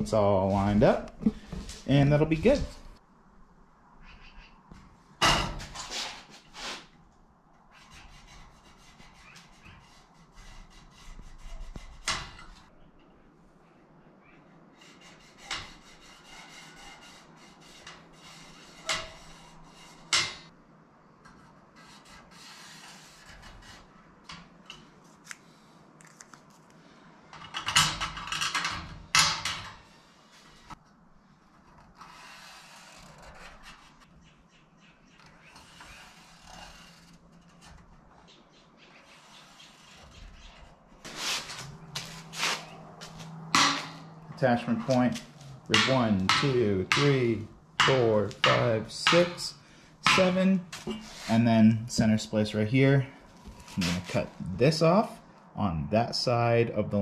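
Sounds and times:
scraping on metal: 0:07.7 - 0:13.1, 0:14.7 - 0:20.5, 0:21.2 - 0:24.9, 0:31.5 - 0:34.1, 0:35.2 - 0:51.6.

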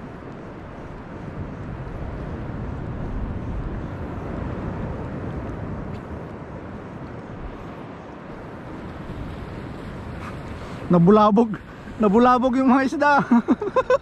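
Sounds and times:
moving seawater: 0:00.0 - 0:14.0
wind on microphone: 0:00.0 - 0:14.0.

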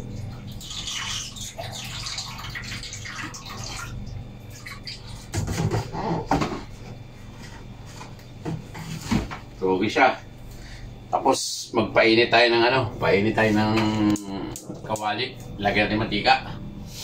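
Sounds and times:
water sloshing in a basin: 0:00.0 - 0:06.4.

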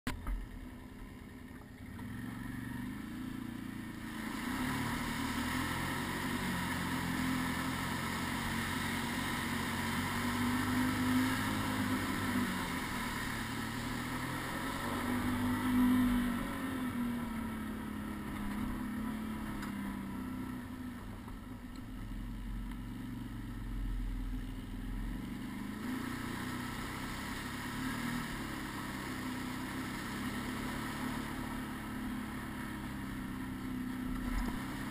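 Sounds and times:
quad engine revving: 0:01.9 - 0:21.0, 0:22.7 - 0:34.9.

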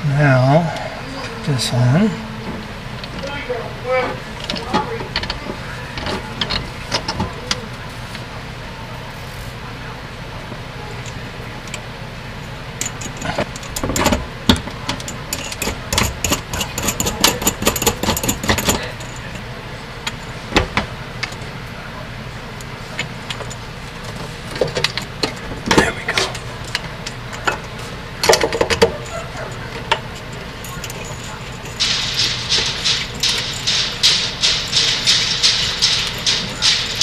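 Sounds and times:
steady low hum: 0:00.0 - 0:37.0
small metal hardware clinking: 0:14.9 - 0:19.3, 0:30.2 - 0:37.0.

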